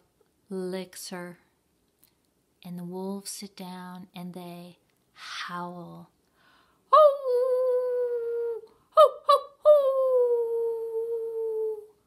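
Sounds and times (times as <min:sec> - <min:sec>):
person imitating wolf howls: 0:07.0 - 0:12.0.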